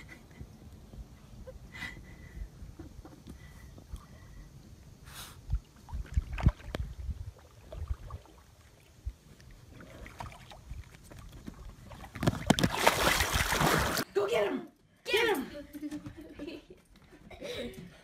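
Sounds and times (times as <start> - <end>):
water lapping against hull: 5.4 - 14.0.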